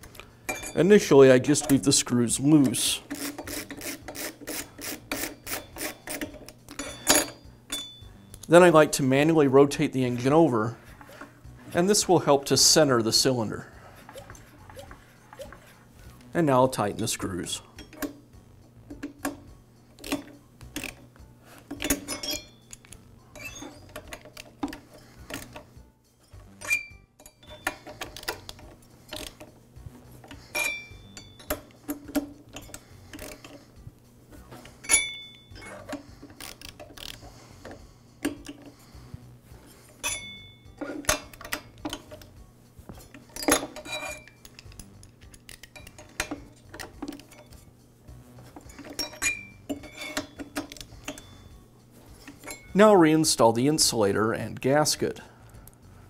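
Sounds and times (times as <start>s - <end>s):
metallic clicks and clinks: 2.6s - 8.6s, 21.7s - 29.6s, 39.9s - 42.4s, 43.0s - 47.7s, 48.6s - 52.8s.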